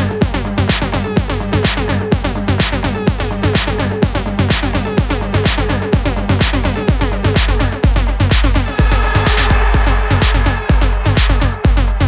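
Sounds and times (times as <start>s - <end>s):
techno kick drum: 0.0s - 12.0s
repeating synth stabs: 8.2s - 12.0s.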